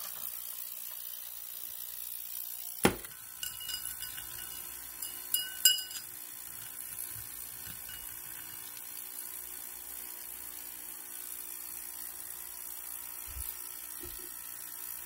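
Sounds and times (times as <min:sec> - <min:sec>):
jewelry clinking against glass dish: 0:03.2 - 0:06.8, 0:07.6 - 0:08.7.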